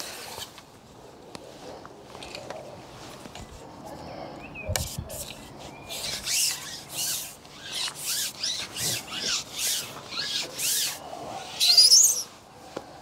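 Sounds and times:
pole sections rubbing: 0:04.8 - 0:12.4.

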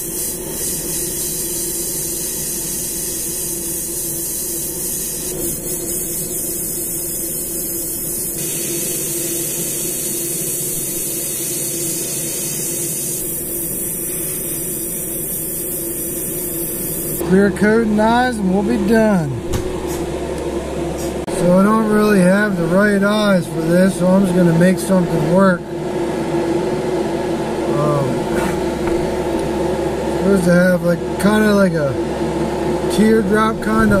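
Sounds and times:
airbrush spraying hiss: 0:00.0 - 0:17.2
steady hum: 0:00.0 - 0:34.0.

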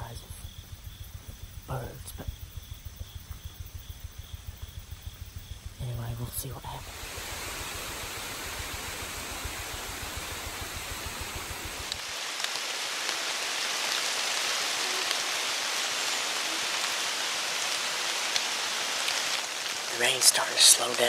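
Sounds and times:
low rumble: 0:00.0 - 0:12.3
rain on leaves: 0:04.4 - 0:21.0.

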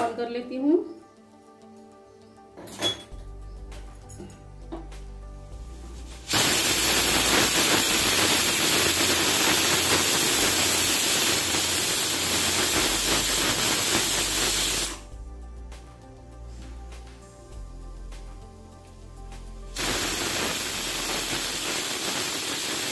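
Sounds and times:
pressure cooker steam hissing: 0:06.1 - 0:15.0, 0:19.8 - 0:22.9.

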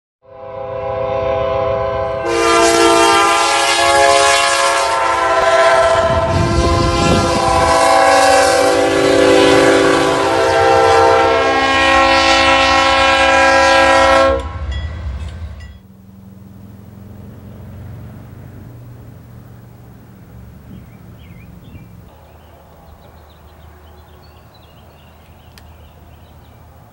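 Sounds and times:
locomotive air horn: 0:00.2 - 0:14.8
rumble of passing train: 0:00.3 - 0:26.9.

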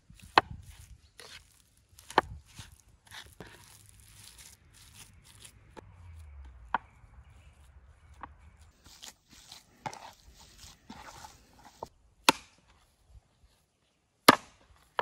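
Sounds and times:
wet squelching and scraping of meat: 0:00.2 - 0:06.4.

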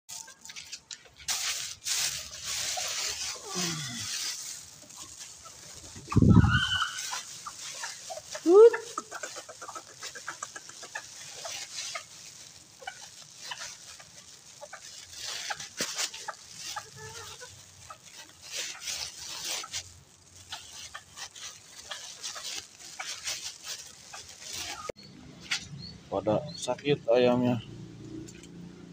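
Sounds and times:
chickens clucking: 0:00.1 - 0:27.0
chicken squawk: 0:05.0 - 0:12.2.

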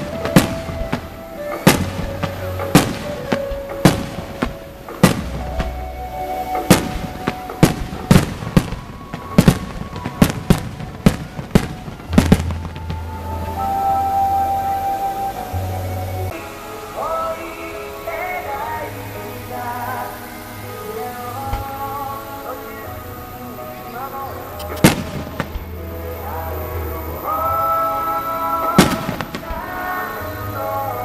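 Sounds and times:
fireworks bangs: 0:00.0 - 0:14.2, 0:24.0 - 0:31.0
music with deep bass: 0:00.0 - 0:16.4.

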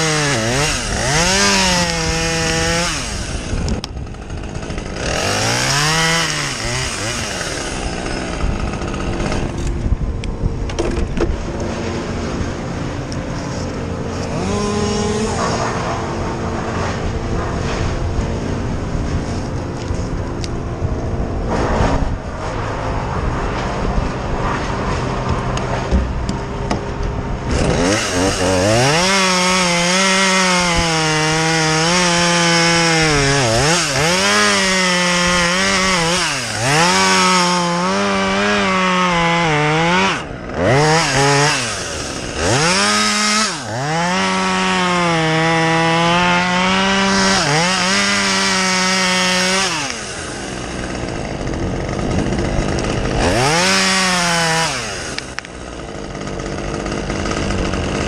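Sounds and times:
chainsaw cutting wood: 0:00.0 - 0:58.0.

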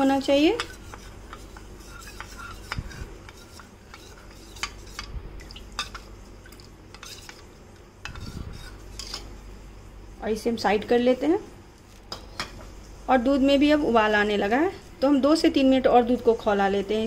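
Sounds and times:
spoon stirring in metal bowl: 0:00.1 - 0:09.4.

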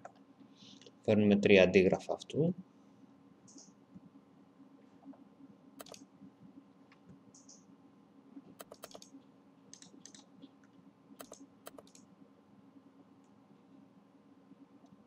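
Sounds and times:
low steady hum: 0:00.0 - 0:15.0
computer mouse clicks: 0:05.8 - 0:06.1, 0:08.6 - 0:12.1.

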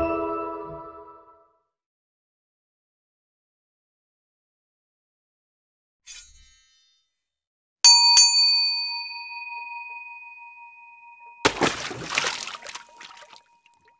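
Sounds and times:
bell-like ding: 0:07.9 - 0:11.4.

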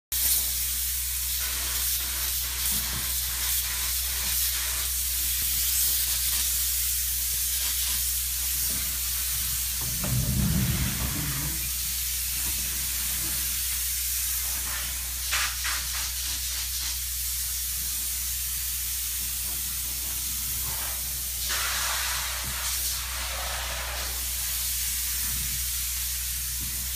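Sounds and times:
spray foam gun hissing: 0:00.2 - 0:26.9
steady low hum: 0:09.5 - 0:11.9
brief low rumble: 0:09.8 - 0:11.8.

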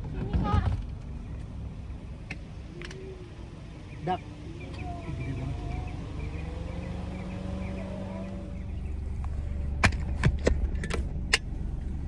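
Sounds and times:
car engine rumble inside cabin: 0:00.0 - 0:12.0
faint high chirping: 0:02.6 - 0:09.1.

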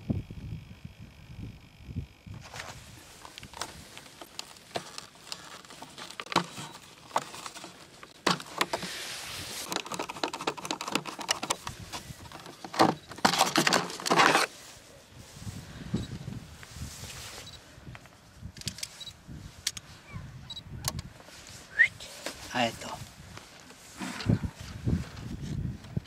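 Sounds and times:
screwdriver turning a screw: 0:09.7 - 0:14.5.

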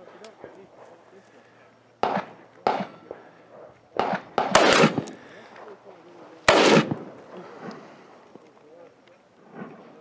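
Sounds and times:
rifle shots with echo: 0:02.0 - 0:03.3, 0:03.9 - 0:05.7, 0:06.4 - 0:07.7.

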